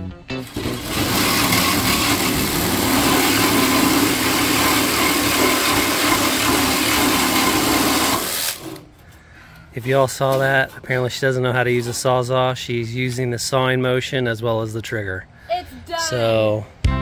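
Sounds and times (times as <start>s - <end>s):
reciprocating saw cutting metal: 0.4s - 8.9s.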